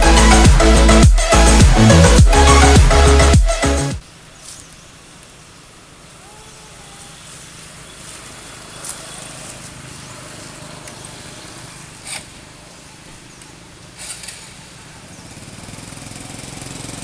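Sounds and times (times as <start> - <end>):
faint call: 6.1 - 7.5
faint distant voices: 6.1 - 13.9.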